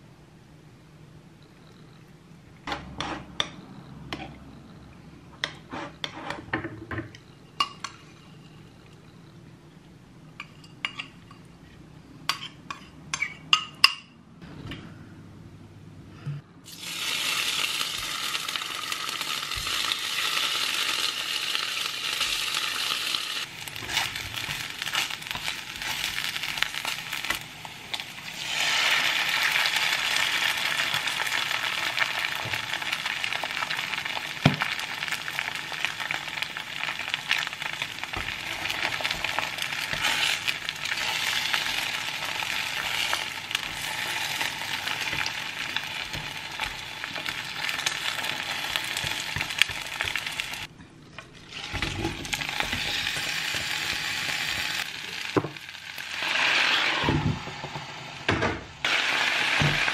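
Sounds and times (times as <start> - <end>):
food sizzling in oil: 16.7 - 50.7, 51.5 - 59.9.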